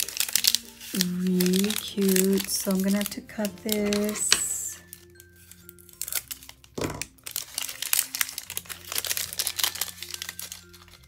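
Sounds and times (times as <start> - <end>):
plastic packet crinkling: 0.0 - 11.0
scissors cutting plastic: 0.0 - 11.0.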